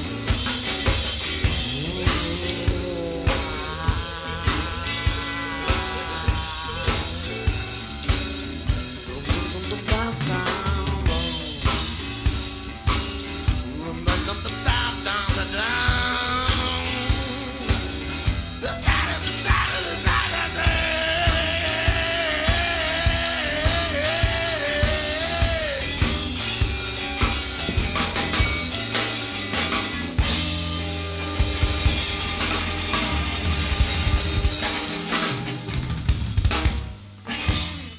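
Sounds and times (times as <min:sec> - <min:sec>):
drum kit: 0:00.0 - 0:37.9
electric guitars: 0:00.0 - 0:37.9
man singing: 0:01.4 - 0:12.2, 0:13.5 - 0:26.4.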